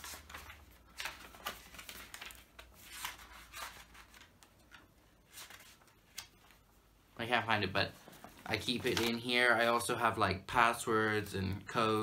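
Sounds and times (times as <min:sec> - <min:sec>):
paper pages turning: 0:00.0 - 0:06.7, 0:08.0 - 0:09.4.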